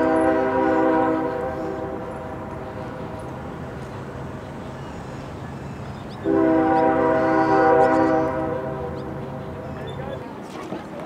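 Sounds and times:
locomotive horn: 0.0s - 2.8s, 6.2s - 9.6s
train rumble: 0.0s - 11.0s.

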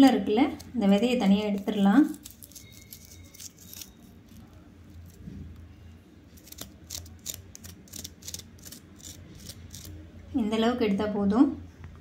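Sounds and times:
knife scraping fruit core: 0.0s - 5.4s, 6.3s - 10.1s.

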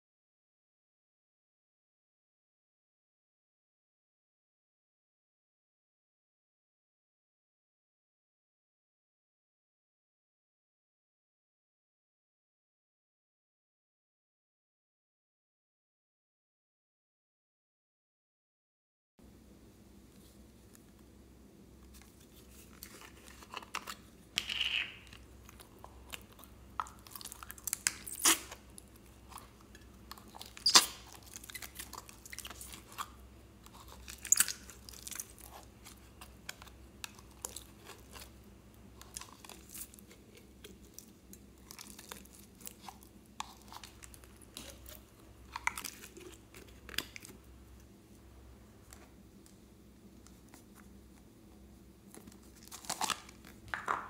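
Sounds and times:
slime crunching and crackling: 25.0s - 47.5s, 52.0s - 53.6s.

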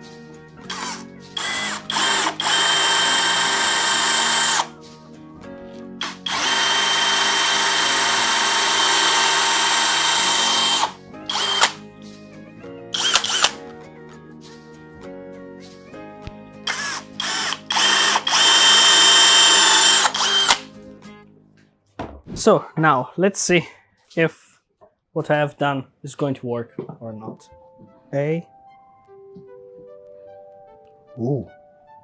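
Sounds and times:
cordless drill boring into wood: 0.7s - 4.7s, 6.0s - 11.8s, 13.0s - 13.6s, 16.7s - 20.7s.

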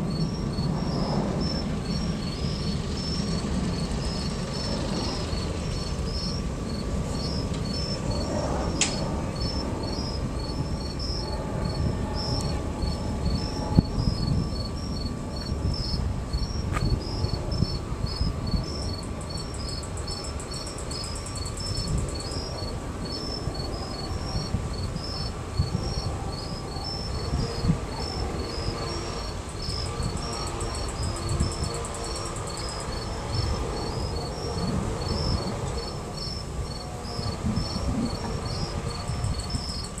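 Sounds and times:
buzzing insect trill: 0.0s - 40.0s
crickets chirping: 0.0s - 40.0s.

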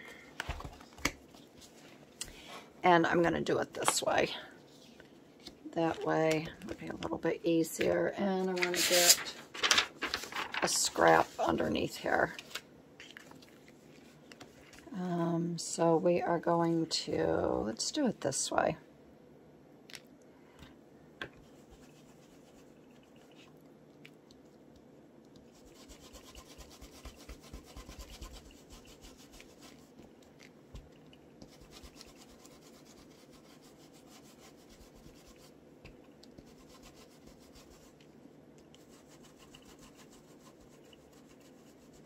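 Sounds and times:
brush scrubbing over stencil: 21.4s - 23.4s, 25.5s - 30.0s, 31.4s - 35.6s, 36.4s - 38.0s, 38.8s - 42.0s.

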